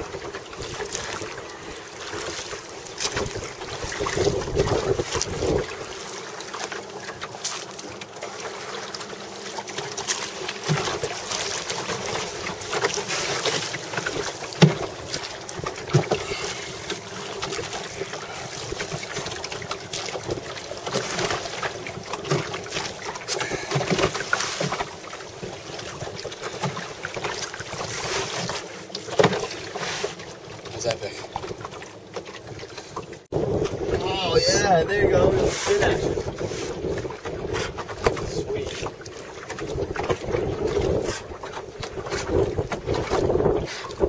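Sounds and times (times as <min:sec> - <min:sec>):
knocks and clatters of boat: 0:00.0 - 0:44.0
water washing along hull: 0:00.0 - 0:44.0
wind on microphone: 0:03.1 - 0:05.9, 0:33.3 - 0:44.0.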